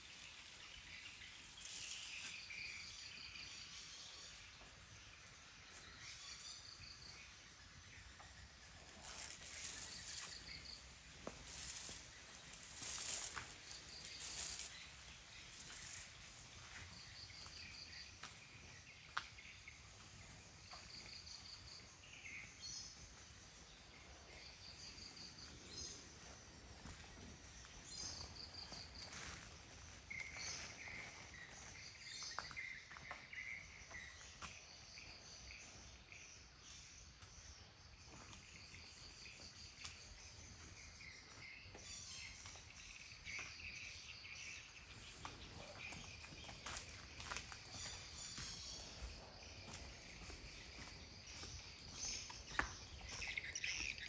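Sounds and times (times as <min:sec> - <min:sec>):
insects chirping: 0:00.0 - 0:54.0.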